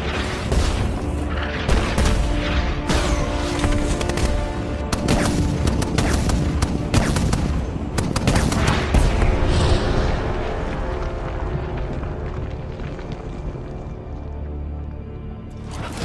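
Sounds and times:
shell explosions: 0.0 - 9.8
film score music: 0.0 - 16.0
rapid gunfire: 4.0 - 9.2.

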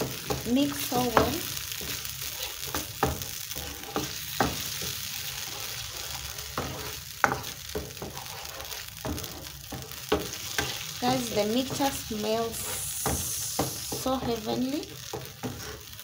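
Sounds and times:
curry sizzling in a frying pan: 0.0 - 16.0
wooden spoon knocking a pan: 2.7 - 3.3, 4.0 - 5.0, 6.6 - 8.2, 9.0 - 12.0.

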